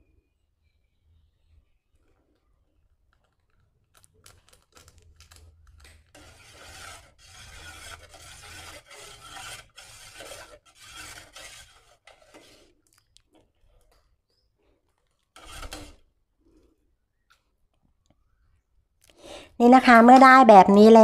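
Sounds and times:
metal ladle scraping metal pot: 0:06.1 - 0:12.8, 0:15.4 - 0:16.0
liquid swishing: 0:06.2 - 0:13.0.

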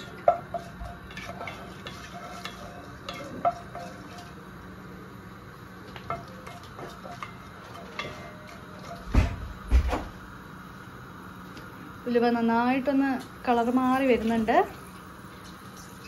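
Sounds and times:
spatula scraping and tapping pot: 0:00.0 - 0:04.5, 0:05.8 - 0:09.4
seeds sizzling in oil: 0:00.0 - 0:16.0.

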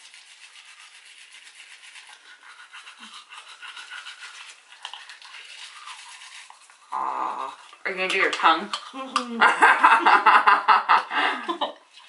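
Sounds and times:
toothbrushes scrubbing teeth: 0:00.0 - 0:10.2.

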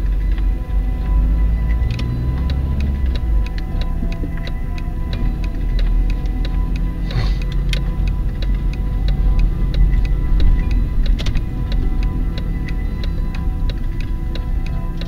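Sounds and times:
engine and road rumble: 0:00.0 - 0:15.0
turn signal ticking: 0:00.0 - 0:15.0.

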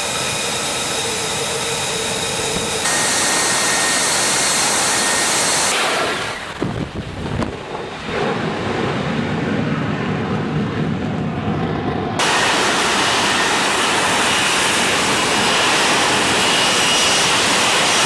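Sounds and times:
jet engine high whine: 0:00.0 - 0:18.0
jet rumble: 0:00.0 - 0:18.0
wind on microphone: 0:06.1 - 0:17.9.

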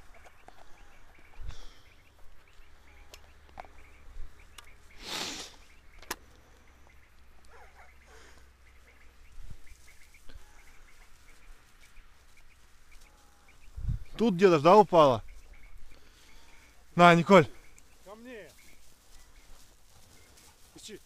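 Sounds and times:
wind rumble on microphone: 0:13.6 - 0:14.2
short rustle: 0:17.5 - 0:21.0.

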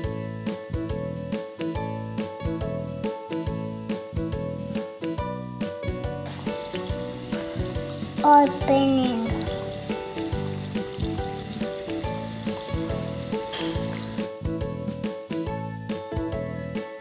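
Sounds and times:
soft background music: 0:00.0 - 0:17.0
tablet fizzing in liquid: 0:06.3 - 0:14.3.

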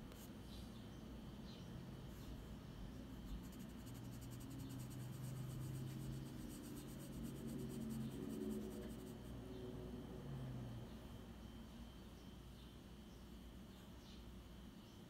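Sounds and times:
faint low hum: 0:00.0 - 0:15.0
pencil scratching on paper: 0:03.3 - 0:09.3.

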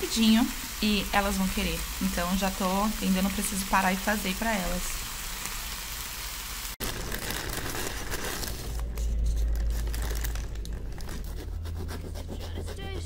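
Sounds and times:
meat sizzling in a pan: 0:00.0 - 0:08.2
paper bag crinkling: 0:06.8 - 0:11.3
crusty bread crackling: 0:06.8 - 0:11.7.

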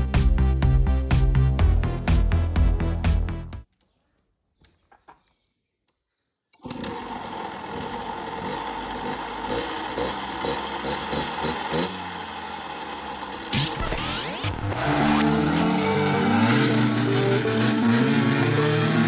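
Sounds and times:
two-stroke motorcycle engine idling: 0:07.0 - 0:13.5.

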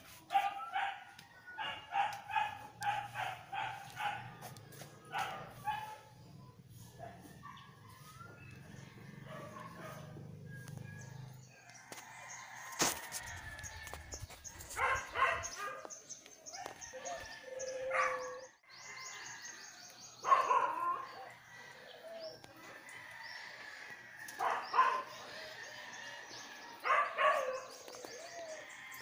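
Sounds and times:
dog barking: 0:00.3 - 0:06.1, 0:09.2 - 0:10.1, 0:14.8 - 0:15.9, 0:17.9 - 0:18.4, 0:20.2 - 0:21.2, 0:24.4 - 0:25.2, 0:26.8 - 0:27.7.

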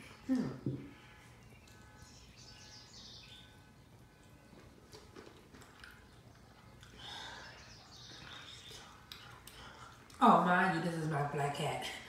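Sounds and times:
chewing and sucking mouth noises: 0:04.2 - 0:10.3.

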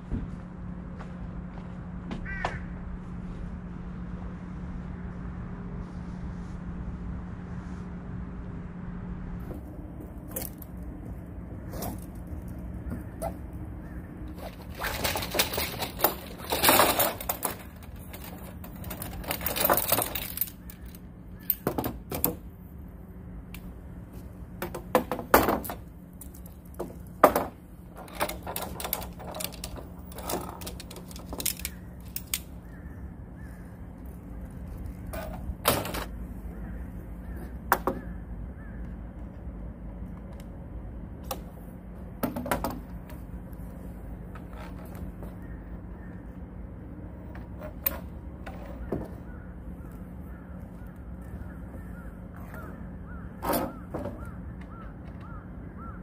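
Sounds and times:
steady low hum: 0:00.0 - 0:56.0
objects clattering and knocking: 0:14.2 - 0:22.4, 0:24.6 - 0:32.4, 0:35.0 - 0:36.1.

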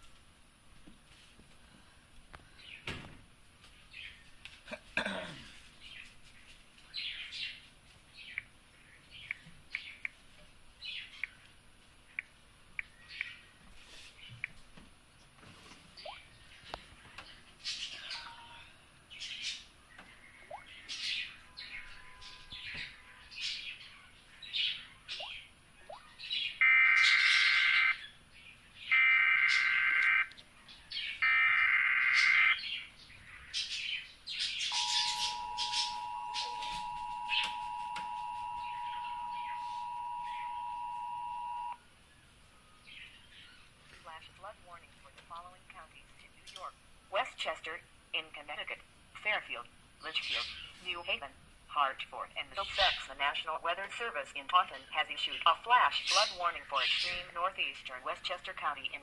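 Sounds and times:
faint bird chirps: 0:16.0 - 0:28.2, 0:32.1 - 0:43.7
two-tone alert beep: 0:34.8 - 0:41.8.

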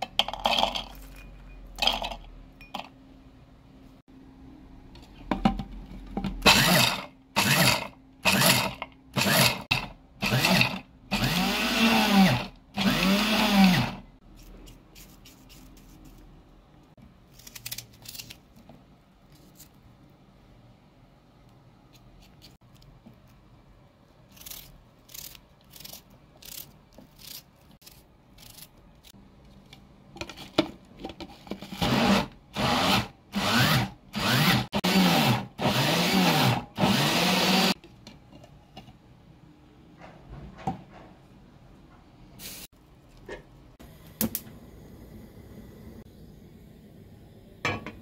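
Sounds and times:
food chopper motor whirring: 0:06.4 - 0:14.0, 0:31.7 - 0:37.8.

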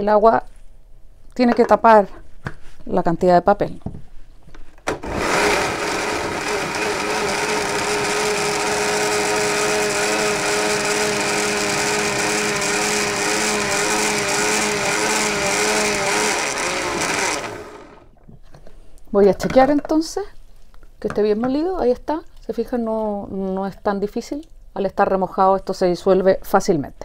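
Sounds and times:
blender running: 0:05.0 - 0:18.1.

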